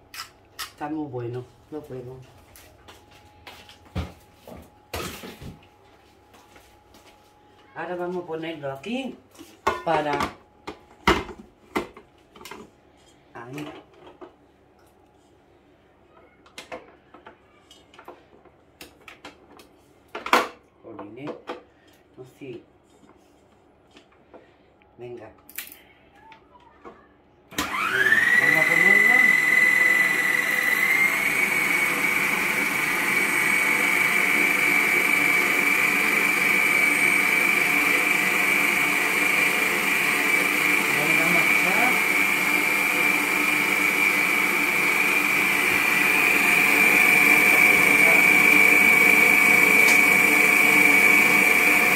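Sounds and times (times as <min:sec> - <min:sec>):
stand mixer motor whine: 0:27.5 - 0:51.9.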